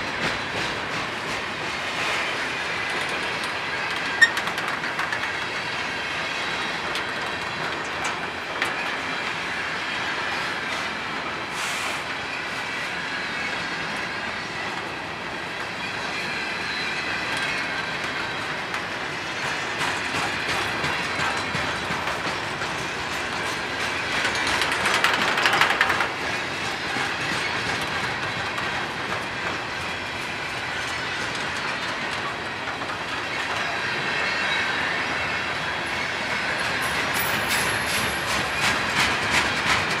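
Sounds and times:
train wheels clicking over rail joints: 0:00.0 - 0:09.5, 0:17.0 - 0:40.0
freight cars rumbling and rattling: 0:19.4 - 0:29.6.

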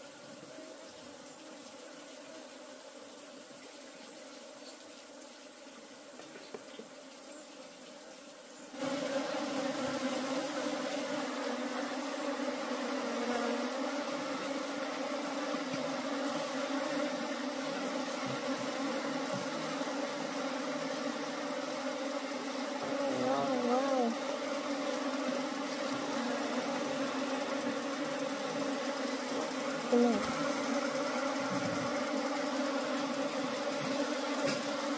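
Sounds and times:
honeybees buzzing: 0:00.0 - 0:34.9.

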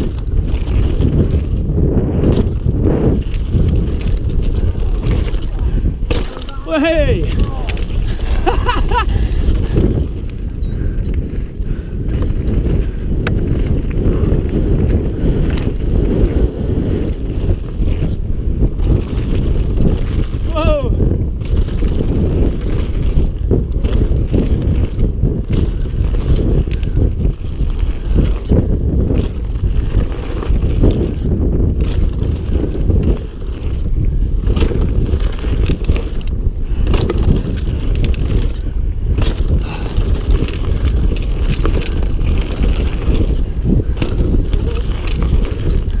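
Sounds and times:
tyres crunching over stones: 0:00.0 - 0:10.3, 0:21.4 - 0:46.0
bike clattering over bumps: 0:00.0 - 0:46.0
wind buffeting microphone: 0:00.0 - 0:46.0.

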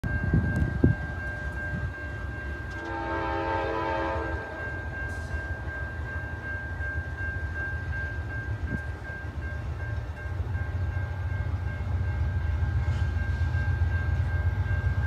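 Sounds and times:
distant locomotive air horn: 0:02.7 - 0:05.4.

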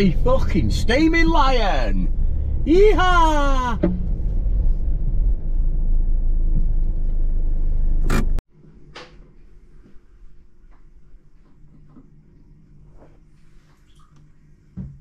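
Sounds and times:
car engine low rumble: 0:00.0 - 0:08.4.

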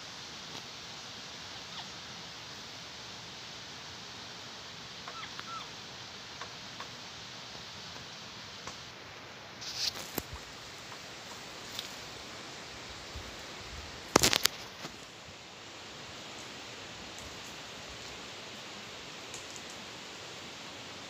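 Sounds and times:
forest ambience hiss: 0:00.0 - 0:21.0.

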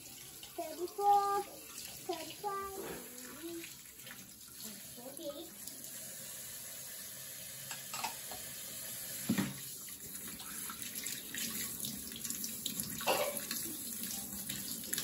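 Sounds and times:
dishes washed with sponge: 0:00.0 - 0:05.9, 0:07.6 - 0:08.5, 0:09.2 - 0:15.0
tap running into steel sink: 0:09.3 - 0:09.6.

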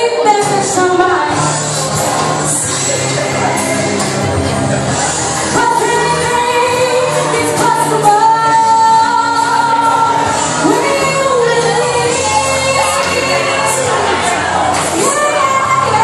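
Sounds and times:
woman singing through loudspeakers: 0:00.0 - 0:02.6, 0:05.4 - 0:16.0.

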